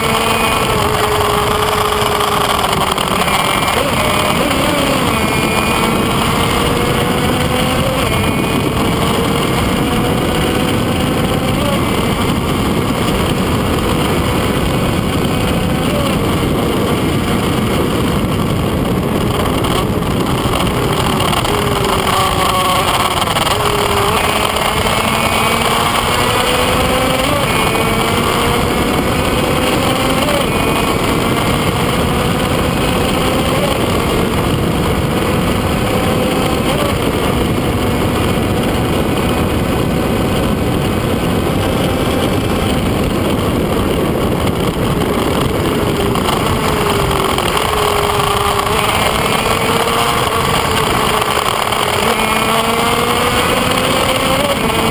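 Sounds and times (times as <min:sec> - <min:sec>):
motorcycle engine at full throttle: 0:00.0 - 0:54.9
wind rush on microphone: 0:00.0 - 0:54.9.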